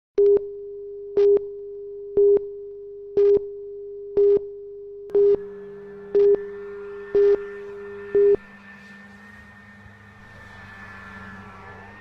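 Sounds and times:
short electronic beeps: 0:05.1 - 0:05.4
steady electronic tone: 0:05.1 - 0:12.0
synth tones: 0:05.1 - 0:12.0.

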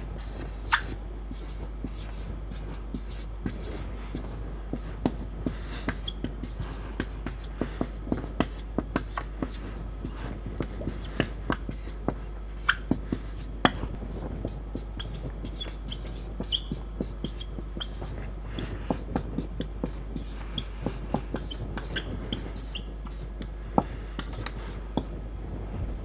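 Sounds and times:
marker pen scratching on whiteboard: 0:00.0 - 0:25.2
steady low hum: 0:00.0 - 0:26.0
marker tip squeaks: 0:00.2 - 0:03.8, 0:05.9 - 0:07.5, 0:12.6 - 0:13.8, 0:15.0 - 0:18.8, 0:21.4 - 0:23.3.

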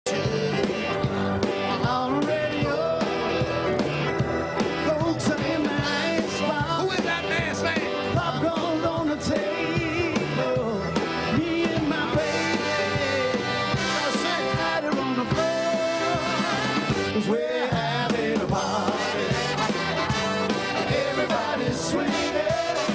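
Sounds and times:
rock and roll song with singer: 0:00.0 - 0:22.9.

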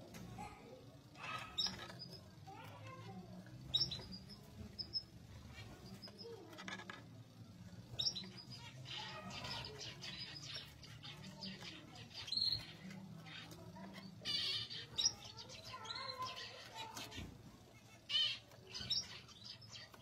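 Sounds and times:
zebra finches calling: 0:08.0 - 0:20.0.

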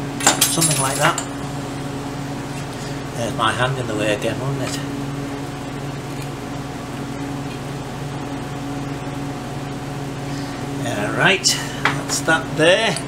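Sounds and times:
machine hum: 0:00.0 - 0:13.0.

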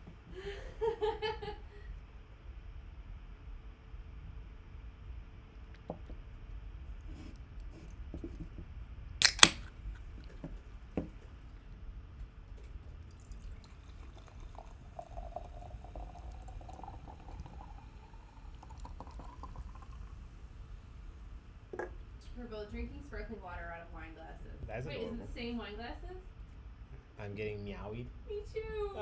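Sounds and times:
sharp double click: 0:09.2 - 0:09.7
liquid pouring into a glass: 0:09.2 - 0:20.8.

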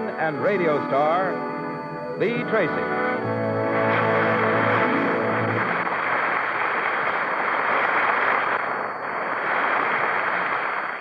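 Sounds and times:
orchestra chord: 0:00.0 - 0:06.3
audience applauding: 0:03.6 - 0:11.0.

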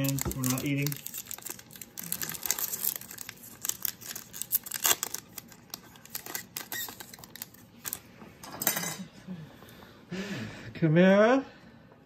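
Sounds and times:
foil wrapper tearing and crinkling: 0:00.0 - 0:08.0.

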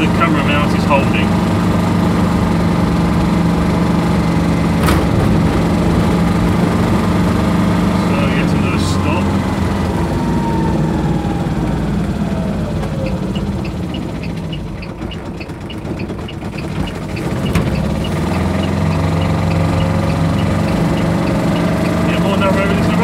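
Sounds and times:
diesel engine running: 0:00.0 - 0:23.0
fast regular ticking: 0:13.1 - 0:23.0.

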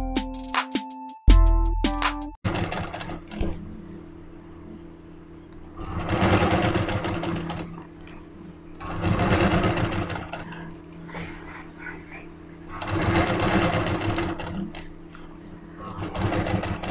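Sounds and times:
sewing machine stitching: 0:02.4 - 0:03.6, 0:05.8 - 0:07.8, 0:08.8 - 0:11.7, 0:12.7 - 0:14.9, 0:15.8 - 0:16.9
motor humming: 0:02.5 - 0:16.9.

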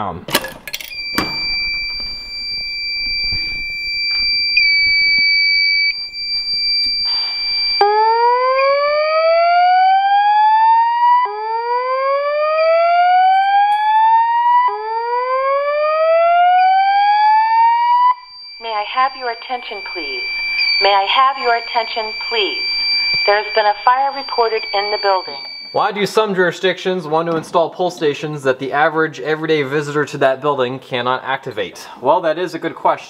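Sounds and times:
high-pitched alarm tone: 0:00.8 - 0:26.4
whooping evacuation siren: 0:01.0 - 0:26.2.

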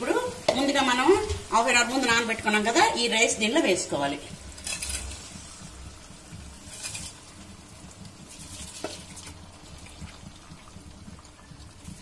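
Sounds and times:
faint sizzle: 0:00.0 - 0:12.0
spatula knocking on pot: 0:00.5 - 0:01.3
metal spatula scraping pot: 0:04.5 - 0:05.6, 0:06.6 - 0:07.3.

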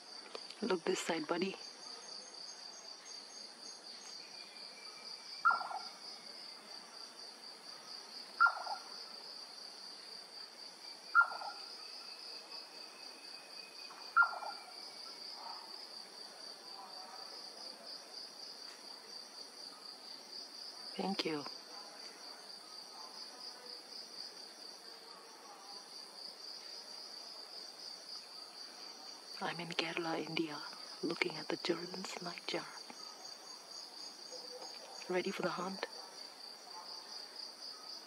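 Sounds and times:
crickets chirping: 0:00.0 - 0:38.0
nightjar knocking call: 0:05.4 - 0:05.9, 0:08.4 - 0:08.9, 0:11.2 - 0:11.6, 0:14.1 - 0:14.6.

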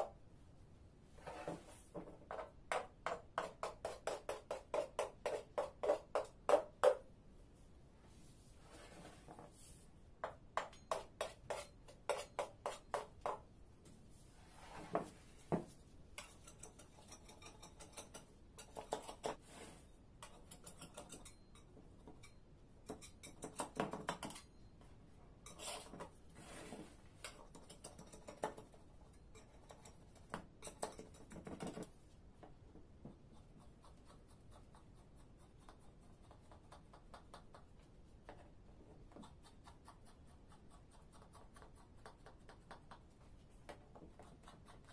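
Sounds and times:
knife scraping metal tray and pastry: 0:16.2 - 0:23.6, 0:25.4 - 0:28.5.

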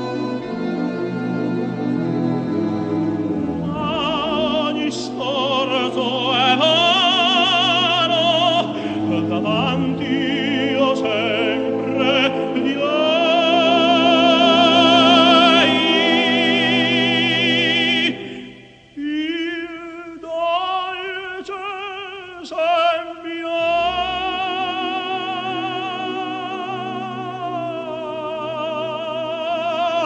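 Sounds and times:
orchestral accompaniment: 0:00.0 - 0:18.5
operatic tenor singing: 0:00.0 - 0:30.0.

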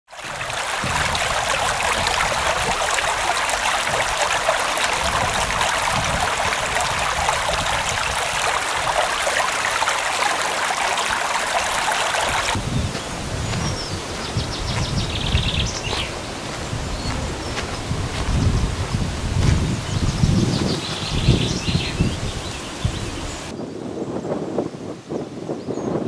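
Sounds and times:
stream babbling over stones: 0:00.1 - 0:12.6.

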